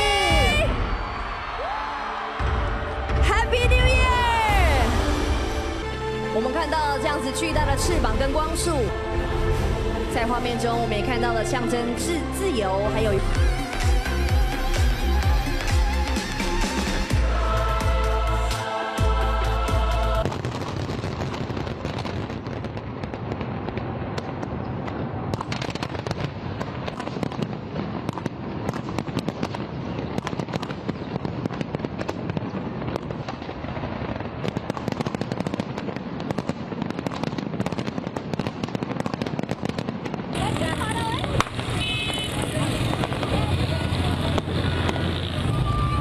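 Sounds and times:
fireworks bangs and crackles: 0:00.0 - 0:46.0
music: 0:02.4 - 0:20.5.

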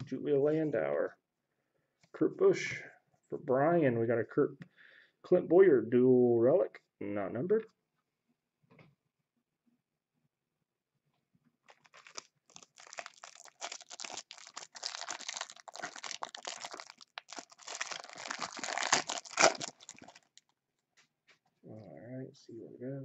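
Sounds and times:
plastic wrapper crinkling: 0:11.6 - 0:20.6.

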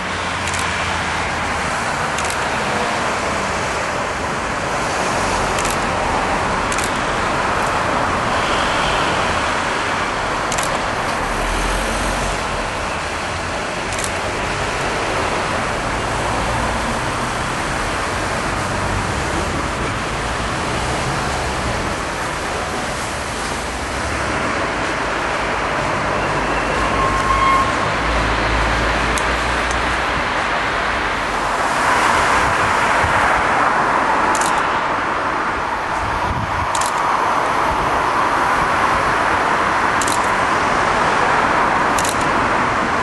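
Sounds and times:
sharp clicks: 0:00.4 - 0:00.7, 0:02.1 - 0:02.5, 0:05.6 - 0:05.9, 0:06.7 - 0:07.8, 0:10.5 - 0:10.9, 0:13.9 - 0:14.2, 0:34.3 - 0:34.7, 0:36.7 - 0:37.1, 0:40.0 - 0:40.4, 0:42.0 - 0:42.3
steam train rushing past: 0:11.2 - 0:34.4.

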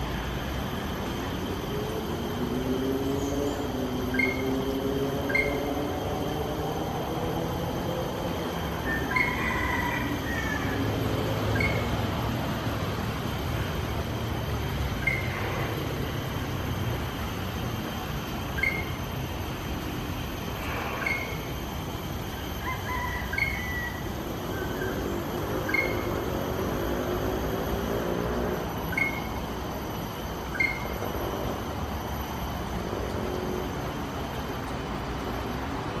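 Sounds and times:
bird call: 0:04.1 - 0:04.5, 0:11.5 - 0:12.0, 0:15.0 - 0:15.7, 0:18.5 - 0:19.0, 0:20.8 - 0:21.5, 0:22.6 - 0:25.0, 0:28.9 - 0:29.4, 0:30.5 - 0:31.0
bird whistled call: 0:04.1 - 0:04.5, 0:05.3 - 0:05.7, 0:11.5 - 0:11.9, 0:15.0 - 0:15.5, 0:18.5 - 0:19.0, 0:21.0 - 0:21.5, 0:28.9 - 0:29.4, 0:30.5 - 0:31.0.

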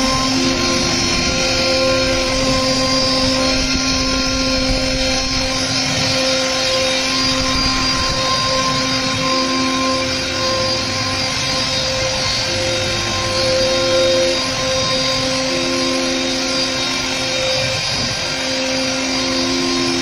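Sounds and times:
lower hum: 0:00.0 - 0:20.0
router spindle whining: 0:00.0 - 0:20.0.

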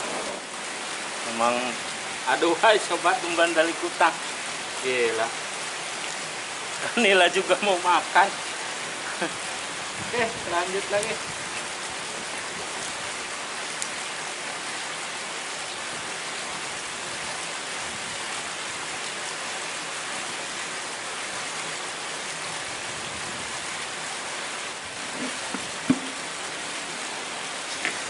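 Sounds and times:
water hissing: 0:00.0 - 0:05.6, 0:23.3 - 0:28.0.

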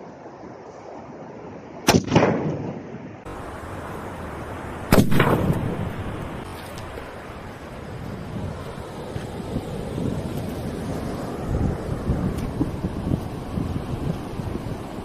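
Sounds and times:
wind: 0:00.0 - 0:15.0
firecracker bangs: 0:04.9 - 0:06.4.

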